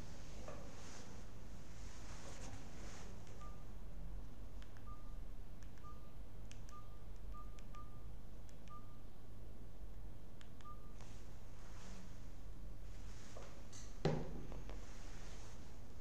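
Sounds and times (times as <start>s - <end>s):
steady low hum: 0.0s - 16.0s
short electronic beeps: 3.4s - 3.6s, 4.8s - 5.2s, 5.8s - 6.1s, 6.7s - 8.1s, 8.7s - 9.0s, 10.6s - 11.0s.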